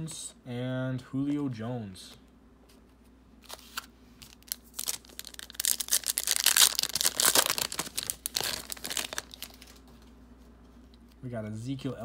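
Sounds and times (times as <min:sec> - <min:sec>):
plastic wrapper crinkling and tearing: 0:03.4 - 0:09.9.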